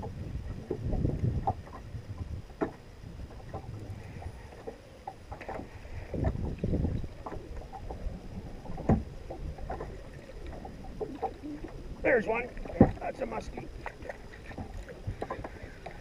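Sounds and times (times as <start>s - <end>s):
water slapping against boat: 0.0s - 16.0s
knocks on hull: 12.6s - 13.1s.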